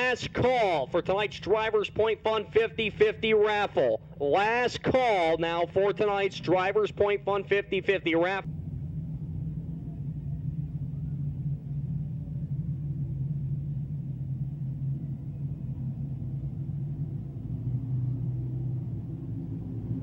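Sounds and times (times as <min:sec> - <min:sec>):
race car engines droning: 0:00.0 - 0:20.0.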